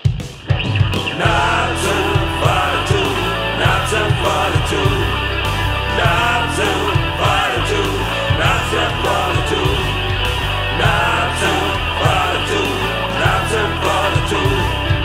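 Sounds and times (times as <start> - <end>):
bass: 0.0 - 15.0
bending lead melody: 0.0 - 15.0
pounding drums: 0.0 - 15.0.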